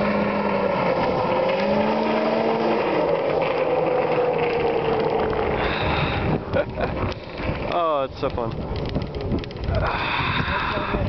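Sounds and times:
snowmobile engine driving away: 0:00.0 - 0:07.8.

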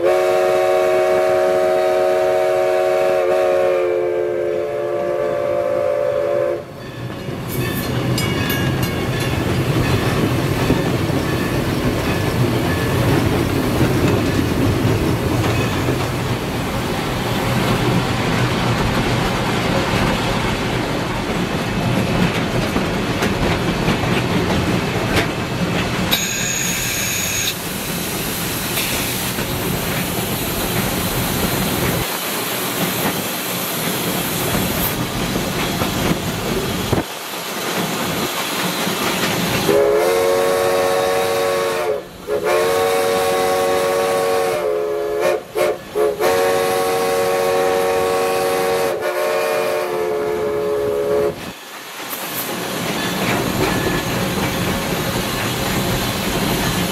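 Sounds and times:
steam whistle: 0:00.0 - 0:06.8, 0:26.1 - 0:27.6, 0:39.7 - 0:51.5
locomotive engine and wheels running: 0:06.8 - 0:40.0, 0:50.9 - 0:56.9.

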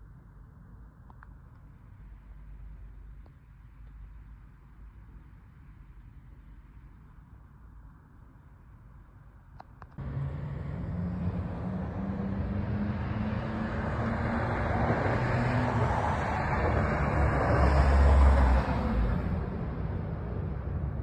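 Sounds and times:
vehicle rumble: 0:09.8 - 0:21.0.

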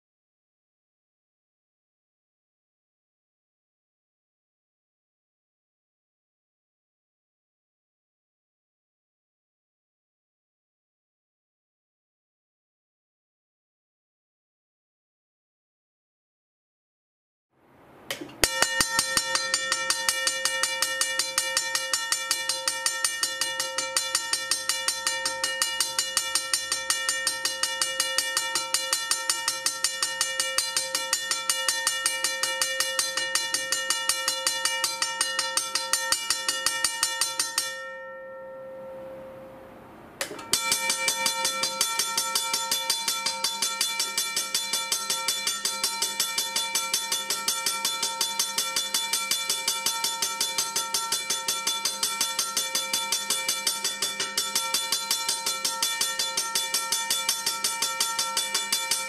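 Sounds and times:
railway crossing bell ringing: 0:18.4 - 0:39.8, 0:40.4 - 0:59.0.

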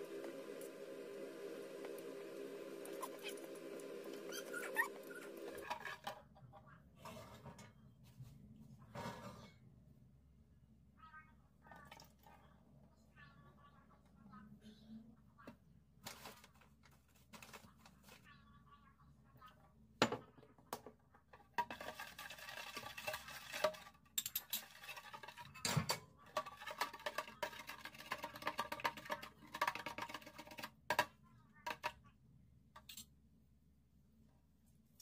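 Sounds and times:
spoon stirring and clinking: 0:21.6 - 0:31.1.

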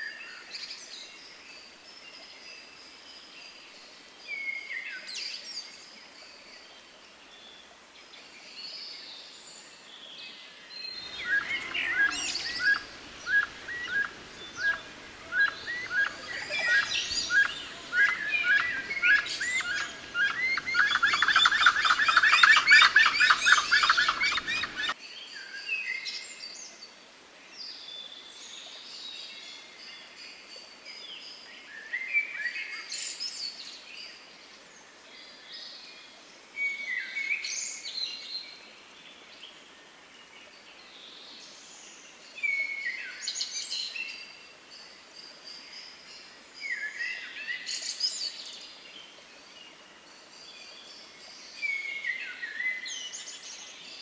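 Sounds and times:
soft bird chirps: 0:10.8 - 0:25.0
birds chattering chorus: 0:11.0 - 0:25.0.

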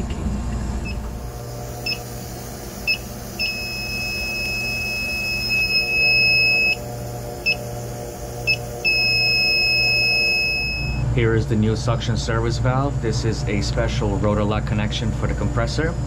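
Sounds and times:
low machine hum: 0:00.0 - 0:16.0
leak detector beeping: 0:00.8 - 0:11.1
leak detector long tone: 0:00.8 - 0:11.4.

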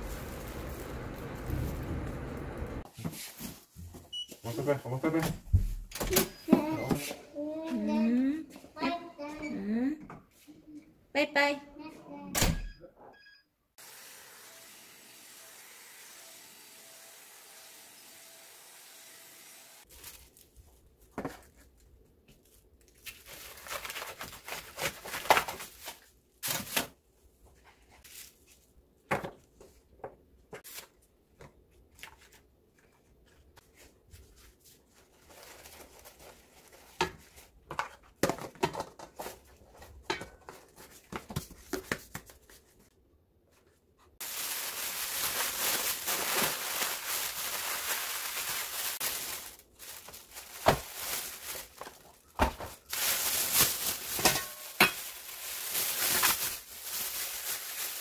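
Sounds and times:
plastic bag crumpling: 0:00.0 - 0:02.4, 0:19.9 - 0:20.8, 0:44.2 - 0:58.0
plastic bag rustling: 0:00.0 - 0:03.8, 0:19.9 - 0:26.9, 0:33.7 - 0:37.6, 0:44.2 - 0:58.0.

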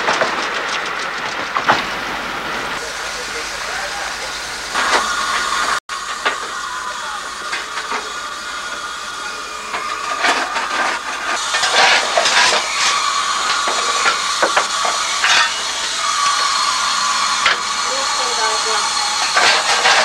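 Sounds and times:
steam locomotive hissing: 0:00.0 - 0:20.0
metallic clanks and scrapes: 0:09.6 - 0:20.0.

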